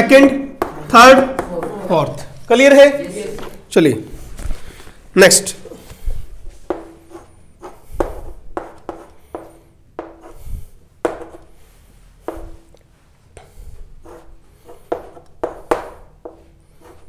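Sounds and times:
pen scratching on paper: 6.6 - 11.6, 14.0 - 17.0.

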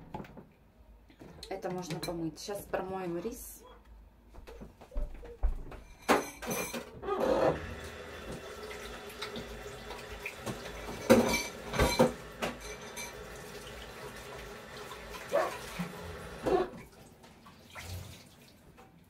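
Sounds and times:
dishes clattering against sink: 4.4 - 7.6, 10.0 - 13.4
tap running into a sink: 7.8 - 16.9.

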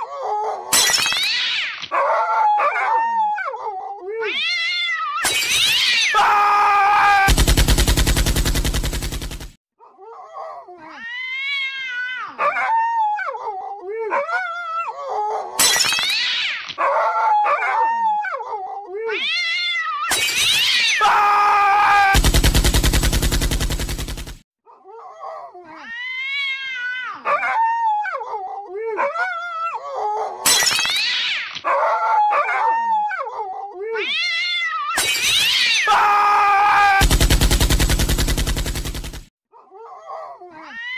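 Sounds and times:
animal yowling and howling: 0.0 - 7.3, 10.1 - 22.2, 24.9 - 37.0.

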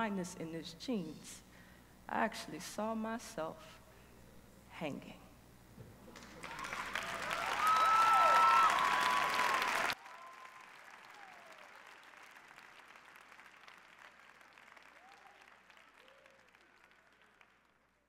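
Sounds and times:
audience applauding and cheering: 6.1 - 17.9.

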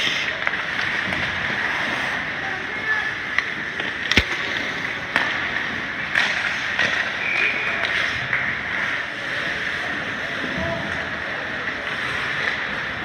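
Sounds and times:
stick and puck clacks: 0.0 - 1.6, 3.2 - 9.2, 11.6 - 13.0
skates scraping ice: 0.0 - 13.0
steady rink hum: 0.0 - 13.0.

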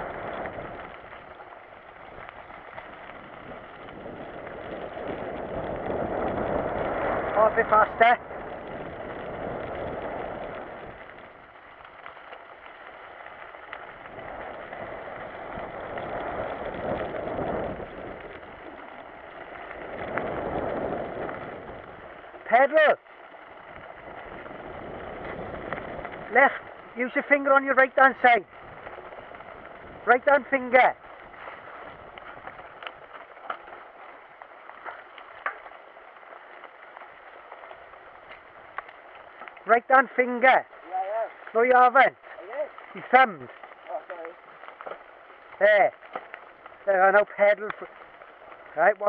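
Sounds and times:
bike rattles: 0.0 - 49.0
bike tyres on gravel: 0.0 - 49.0
wind on microphone: 2.0 - 11.6, 13.9 - 22.2, 23.6 - 27.0, 28.4 - 33.1
small clicks: 8.4 - 39.8, 40.5 - 48.8.

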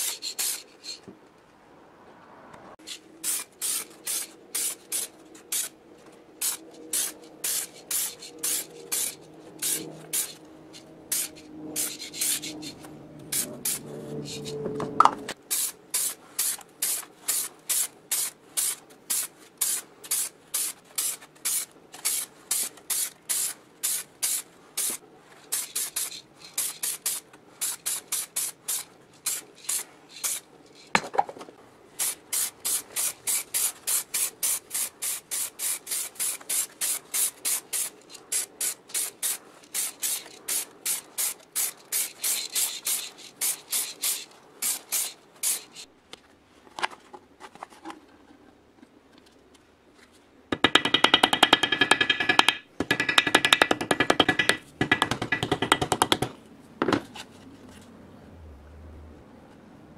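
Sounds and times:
spray-paint can hissing bursts: 0.0 - 1.0, 2.9 - 5.7, 6.4 - 10.4, 11.1 - 14.5, 15.5 - 30.4, 32.0 - 45.9.

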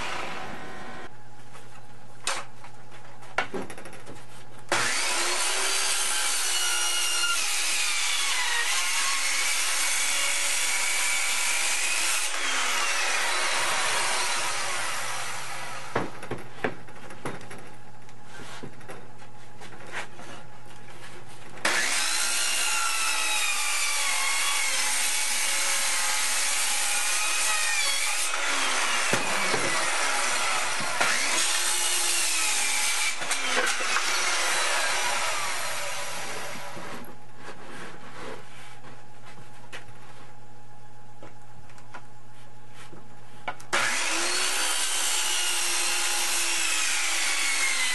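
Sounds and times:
circular saw cutting wood: 0.0 - 1.1, 4.7 - 16.1, 21.6 - 37.0, 43.7 - 47.9.

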